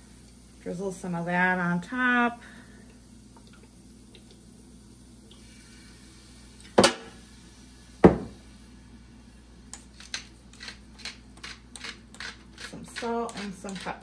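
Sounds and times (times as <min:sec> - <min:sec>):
pepper mill grinding clicks: 0:09.7 - 0:14.0.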